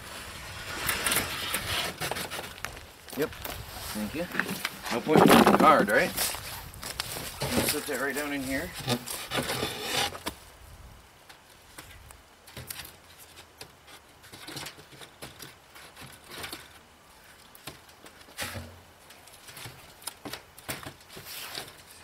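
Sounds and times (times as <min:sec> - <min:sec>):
wooden board knocking and scraping: 0:04.3 - 0:06.1.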